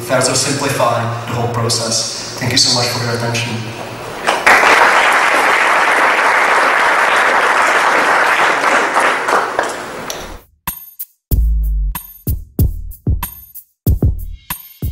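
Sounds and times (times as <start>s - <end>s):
audience applauding: 3.8s - 10.4s.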